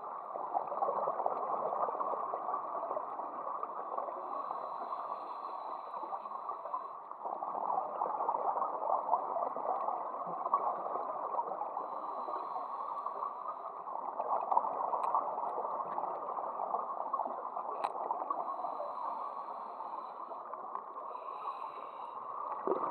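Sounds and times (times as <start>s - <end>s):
faint clicks: 14.9s - 16.2s, 17.7s - 18.4s.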